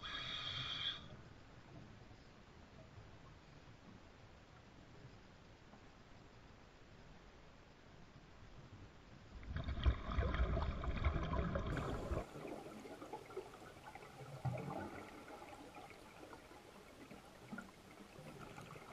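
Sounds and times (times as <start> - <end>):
water bubbling and trickling: 9.4 - 18.9.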